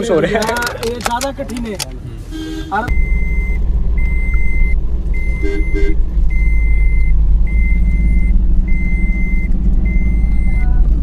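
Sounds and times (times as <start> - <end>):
engine and road rumble: 0.0 - 11.0
car warning chime beeping: 2.9 - 10.9.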